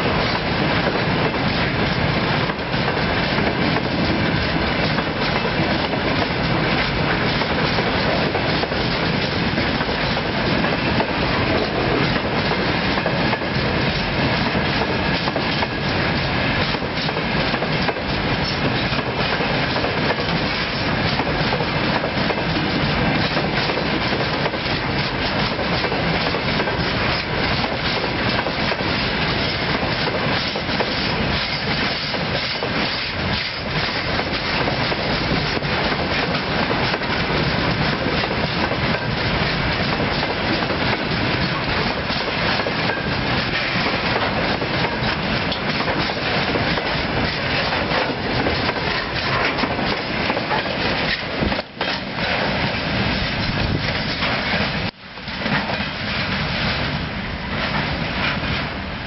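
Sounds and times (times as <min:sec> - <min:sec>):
freight train rumbling: 0:00.0 - 0:59.0
wheels clattering over rails: 0:16.6 - 0:56.4.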